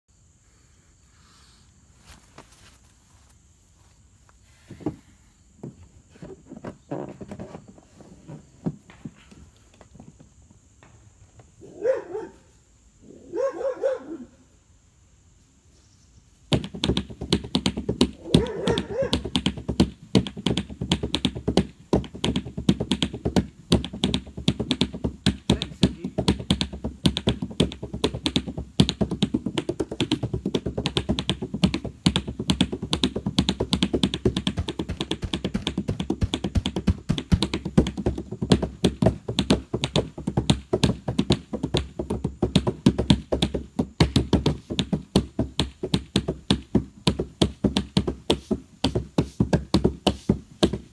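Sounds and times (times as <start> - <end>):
hands drumming on canoe hull: 16.5 - 50.9.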